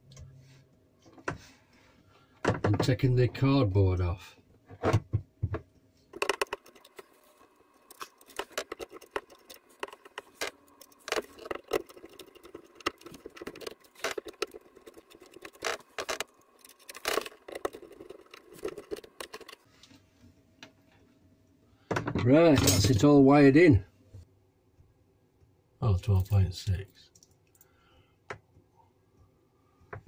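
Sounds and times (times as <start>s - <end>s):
cables and connectors rattling: 4.8s - 19.6s
screwdriver clicking and scraping: 7.8s - 19.6s.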